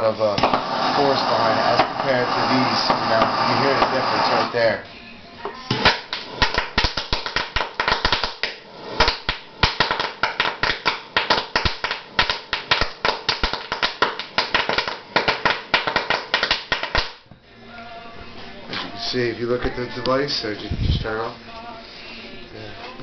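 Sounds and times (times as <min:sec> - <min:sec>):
sharp gas bubble pops: 0:00.4 - 0:00.9.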